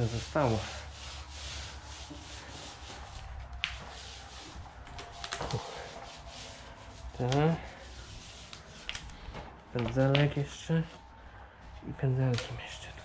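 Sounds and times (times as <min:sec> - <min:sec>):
roller swishing on floor: 0:00.0 - 0:09.5.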